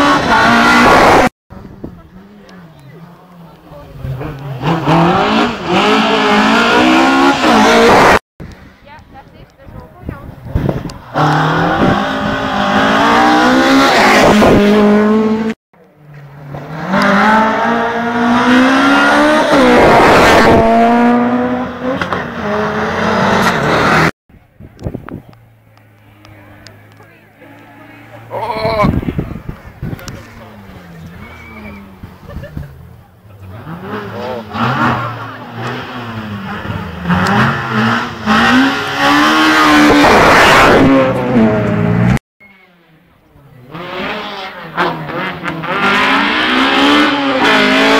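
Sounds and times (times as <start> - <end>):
rally car engine revving: 0.0 - 8.6, 10.3 - 24.1, 24.8 - 47.9.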